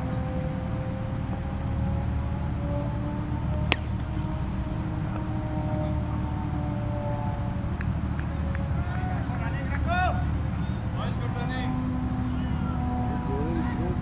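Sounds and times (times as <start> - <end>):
cricket bat striking ball: 3.7 - 4.0
faint drawn-out tones: 10.9 - 14.0.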